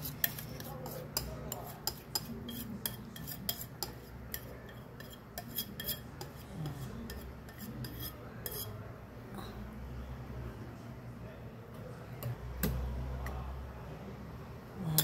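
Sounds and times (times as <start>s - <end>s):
utensils clinking against bowl and pan: 0.0s - 8.8s.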